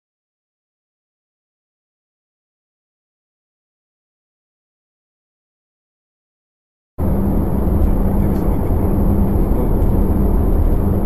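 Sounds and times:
car driving on highway: 7.0s - 11.0s
low engine hum: 7.0s - 11.0s.

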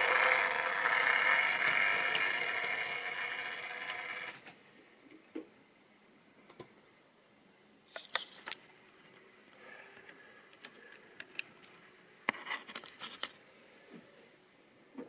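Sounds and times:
faint whir: 0.0s - 7.8s.

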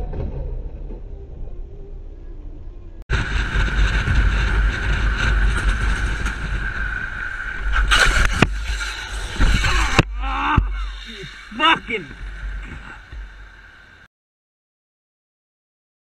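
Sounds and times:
motorcycle engine whine: 0.0s - 14.1s
motorcycle crash: 3.1s - 14.0s
wind rushing over microphone: 3.1s - 14.1s.

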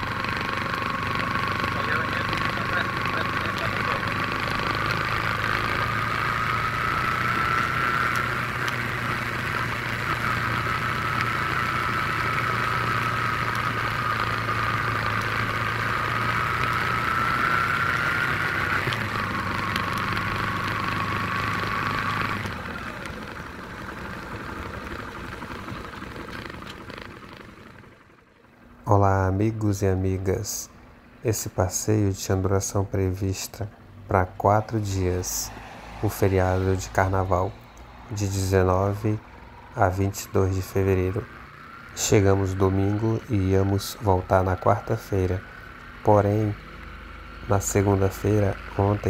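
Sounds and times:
high whine: 0.0s - 30.8s
motorcycle engine at low revs: 0.0s - 49.0s.

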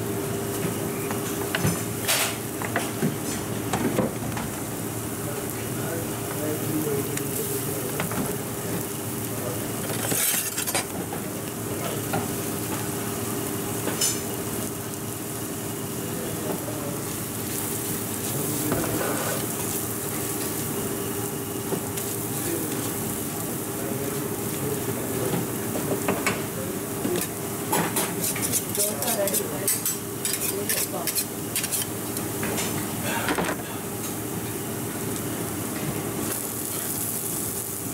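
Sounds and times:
dosa sizzling on griddle: 36.2s - 37.9s.

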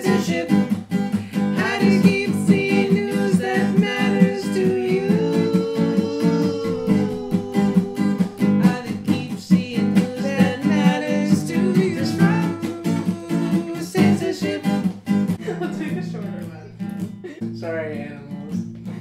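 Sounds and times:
acoustic guitar strumming: 0.0s - 19.0s
person singing long notes: 1.6s - 14.7s.

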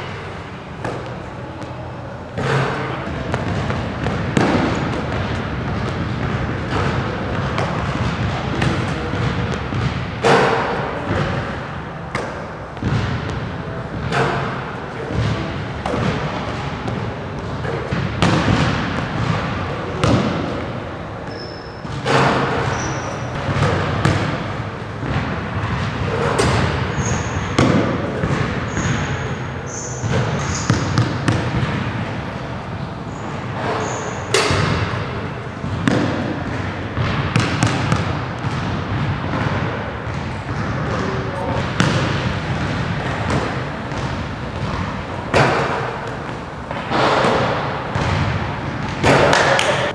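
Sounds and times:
shoe squeaks: 21.3s - 23.4s, 26.9s - 27.6s, 28.7s - 31.0s, 33.1s - 34.4s.

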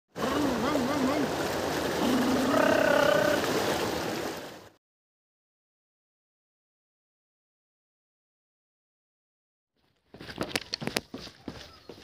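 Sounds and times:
water rushing and splashing: 0.1s - 4.8s
wavering whoop-like voice: 2.0s - 3.6s.

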